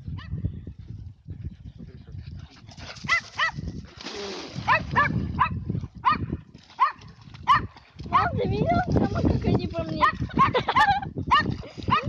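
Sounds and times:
dog barking: 3.1s - 3.6s, 4.7s - 8.3s, 10.0s - 12.0s.

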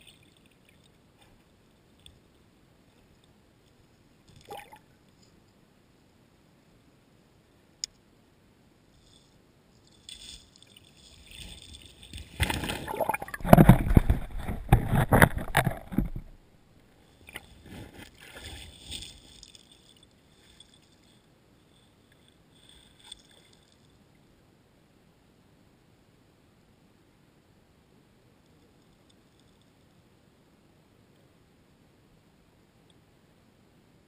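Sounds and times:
fish thrashing underwater splashes: 12.3s - 16.0s.

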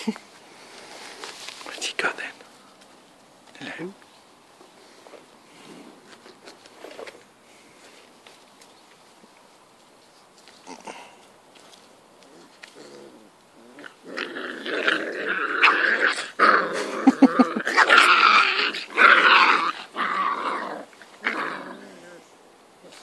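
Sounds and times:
puppies growling: 12.2s - 22.4s.

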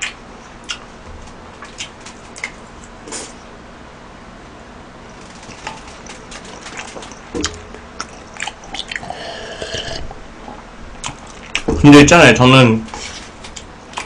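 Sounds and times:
chewing with wet clicks: 0.0s - 0.9s, 5.5s - 9.1s, 11.0s - 11.7s
drink sipped and swallowed: 8.0s - 10.2s.

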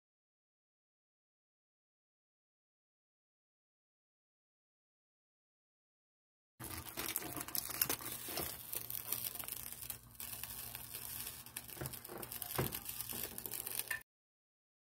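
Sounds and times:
aluminium foil crinkling: 6.6s - 14.0s.

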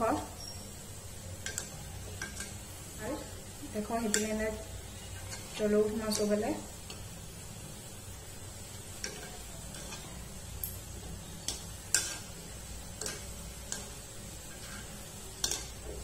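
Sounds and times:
faint frying sizzle: 0.0s - 16.0s
metal spoon tapping a pan: 1.4s - 2.6s, 4.0s - 4.4s, 5.2s - 7.0s, 9.0s - 16.0s.

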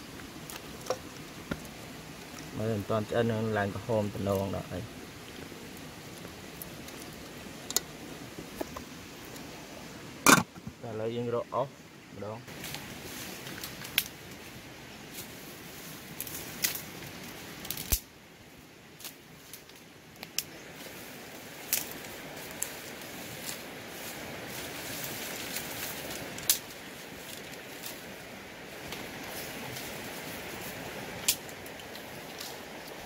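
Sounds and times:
leaves and stems rustling: 0.0s - 11.6s, 12.2s - 33.0s
twigs snapping: 13.4s - 14.2s, 16.2s - 16.9s, 17.6s - 18.1s, 21.6s - 22.8s, 25.3s - 28.0s, 31.2s - 33.0s.

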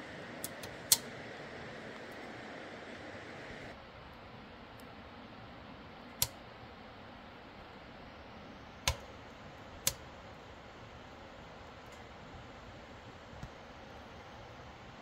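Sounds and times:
wood fire popping: 0.0s - 3.7s
steady fire hiss: 0.0s - 15.0s.

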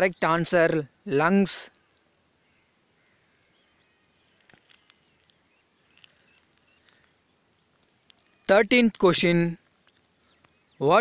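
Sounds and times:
faint clicks: 1.6s - 2.1s, 4.4s - 8.5s, 9.6s - 10.6s
faint high chirps: 1.7s - 8.6s.

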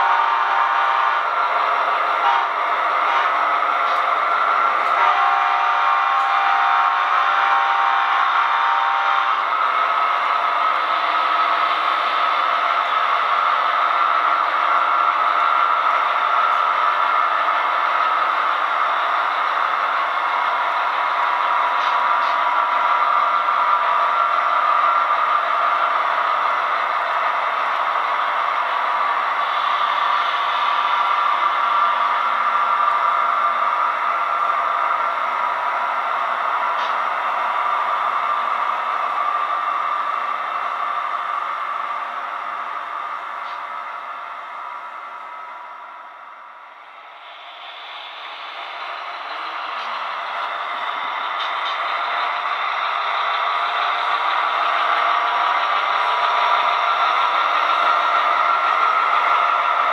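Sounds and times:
model train wheels clattering on rails: 7.2s - 37.8s, 47.2s - 59.9s.

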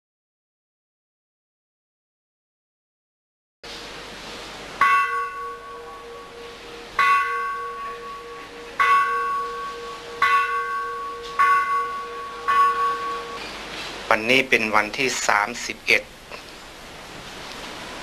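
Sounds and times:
steady hum: 3.6s - 18.0s
temple bell strokes: 4.8s - 14.8s.

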